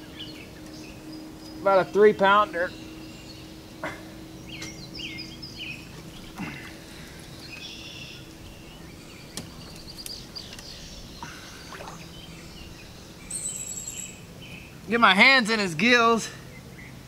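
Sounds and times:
birds chirping: 0.0s - 17.0s
soft water noise: 5.6s - 13.6s.

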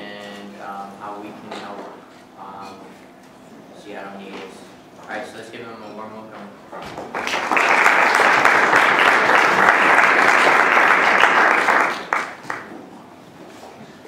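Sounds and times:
audience applauding: 7.0s - 12.8s.

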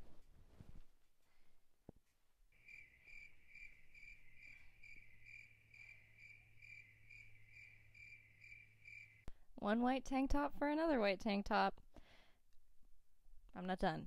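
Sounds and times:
crickets chirping: 2.6s - 9.3s.

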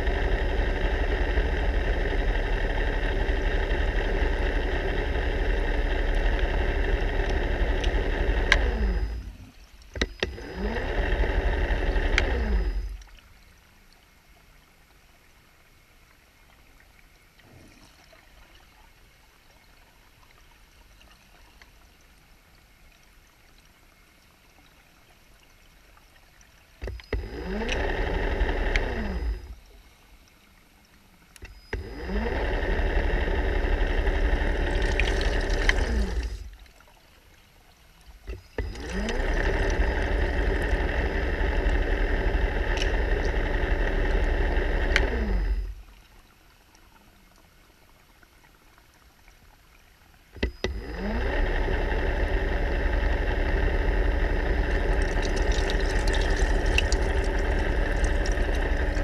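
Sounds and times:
underwater scooter motor: 0.0s - 59.0s.

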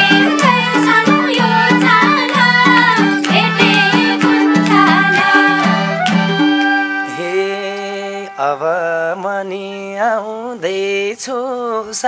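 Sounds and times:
harmonium chords: 0.0s - 9.5s
wavering melody with vibrato: 0.0s - 9.9s.

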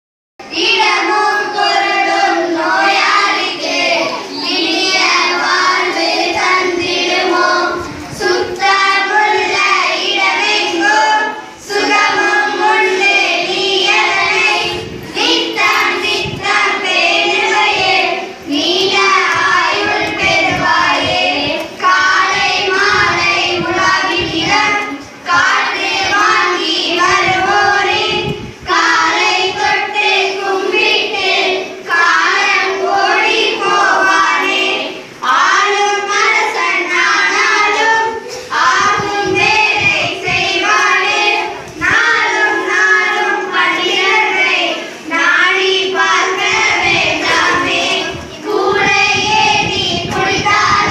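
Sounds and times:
children singing: 0.4s - 50.9s.

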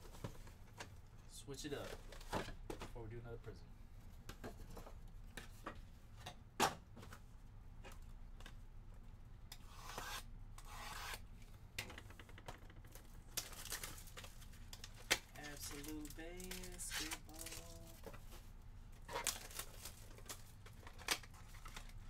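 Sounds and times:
plastic rustling: 12.9s - 22.0s.

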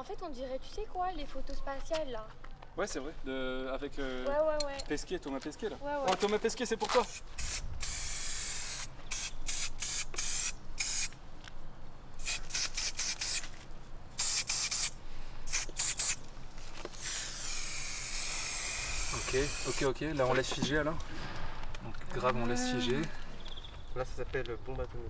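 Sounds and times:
spray-paint can spraying: 7.0s - 11.2s, 12.2s - 13.6s, 14.2s - 16.2s, 16.9s - 19.9s.

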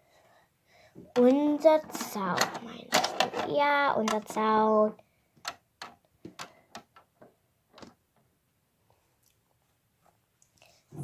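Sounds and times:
plastic toys tapping wooden fence: 5.4s - 8.0s.

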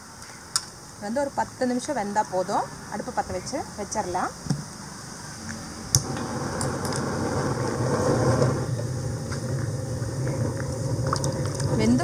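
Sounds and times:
gas flame rushing: 4.4s - 12.0s.

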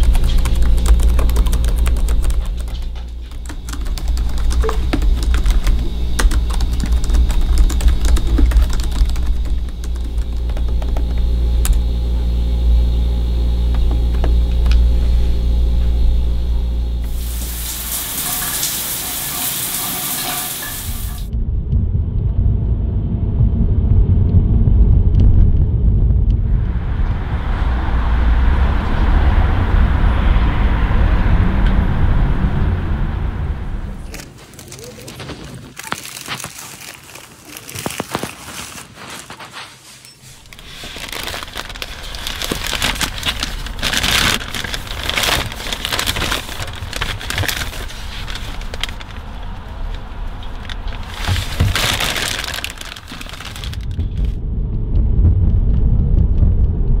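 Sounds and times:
low rumble: 0.0s - 17.9s, 20.9s - 35.1s, 40.3s - 57.0s
steady low hum: 0.0s - 36.2s, 37.6s - 57.0s
shower head spraying water: 17.0s - 21.3s
steady rushing noise: 20.9s - 34.2s.

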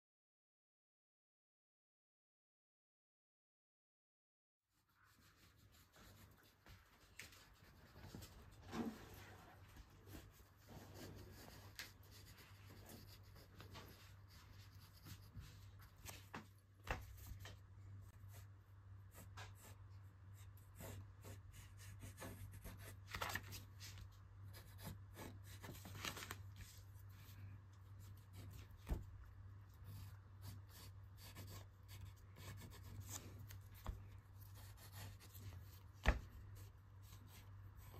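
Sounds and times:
pencil scratching on paper: 4.8s - 23.0s, 24.5s - 25.9s, 26.8s - 37.9s.

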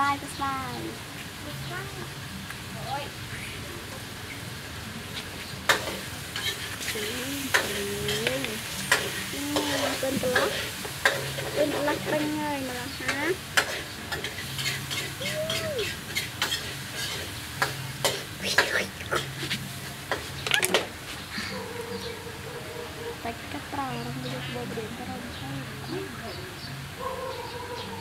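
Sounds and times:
baby monkey wavering vocal sounds: 14.6s - 16.2s.

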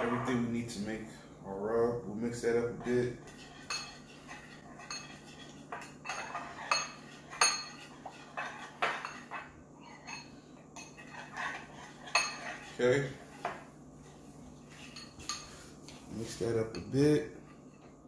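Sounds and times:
fork scraping glass bowl: 2.7s - 13.6s, 14.7s - 15.6s.

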